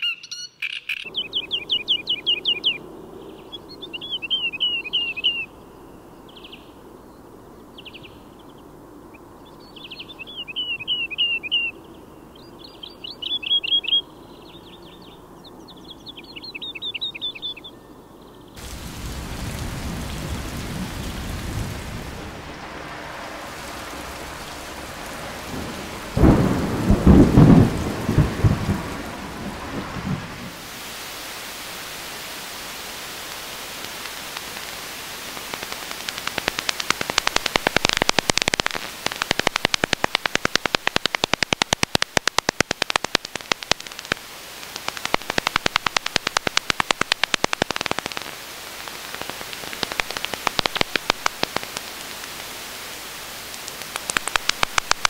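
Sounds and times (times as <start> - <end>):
woodlark singing trills: 0.0 - 2.8, 3.5 - 5.5, 9.4 - 18.5
thunder rumbling: 18.6 - 30.7
rain hissing: 18.6 - 55.0.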